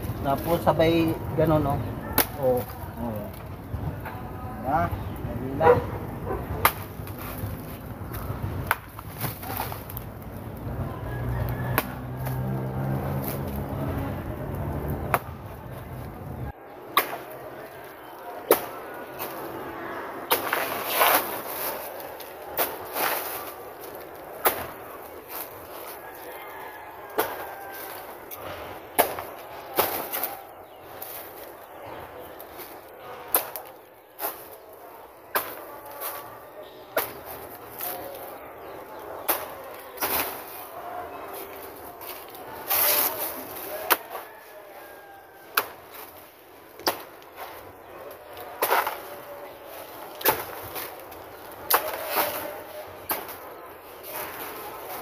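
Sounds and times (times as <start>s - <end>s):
machete chopping banana trunk: 6.6s - 7.2s
machete chopping plant trunk: 6.6s - 7.2s, 16.9s - 17.3s, 45.5s - 46.1s, 46.8s - 47.2s, 50.2s - 51.0s.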